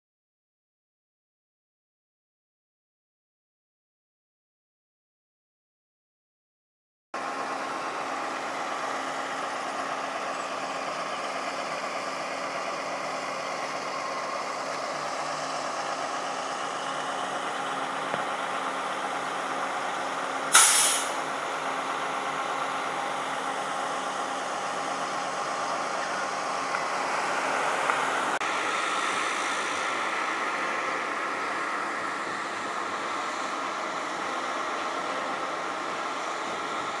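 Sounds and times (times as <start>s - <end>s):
street traffic: 7.2s - 37.0s
vehicle engine running: 7.2s - 37.0s
short loud hiss: 20.5s - 21.2s.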